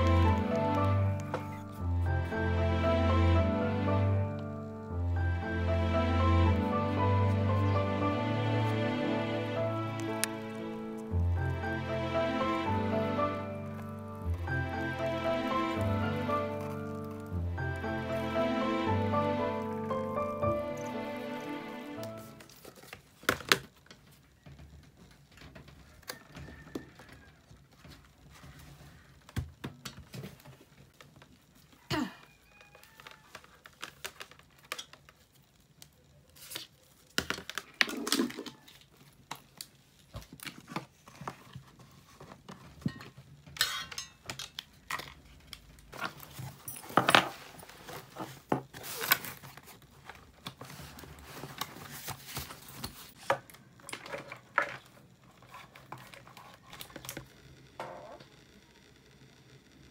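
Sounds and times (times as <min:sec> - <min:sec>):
rustling and crinkling: 0:00.0 - 0:02.3, 0:13.1 - 0:57.4.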